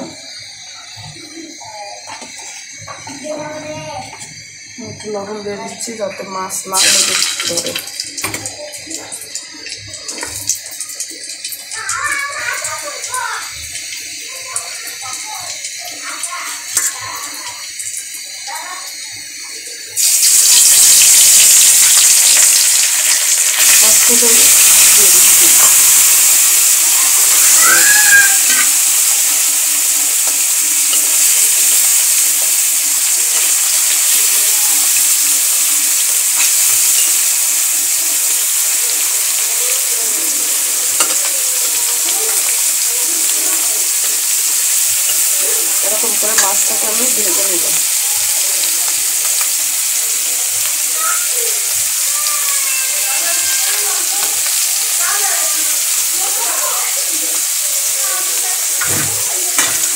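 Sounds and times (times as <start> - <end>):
fish sizzling in hot oil: 0.0 - 59.9.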